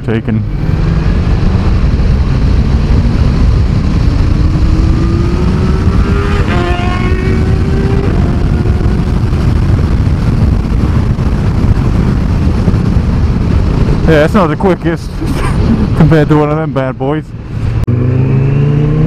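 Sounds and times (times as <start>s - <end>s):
motorcycle engine rumble: 0.0s - 19.0s
wind rush: 0.0s - 19.0s
motorcycle accelerating past: 3.8s - 9.5s, 17.9s - 19.0s.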